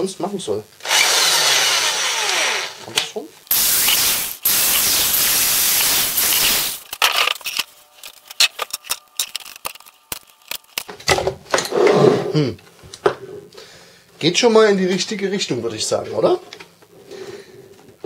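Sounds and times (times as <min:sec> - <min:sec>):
electric drill boring through plastic: 0:00.8 - 0:06.9.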